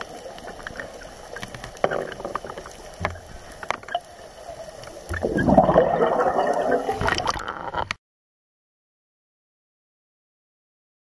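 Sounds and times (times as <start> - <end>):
water gurgling and bubbling: 0.0 - 7.8.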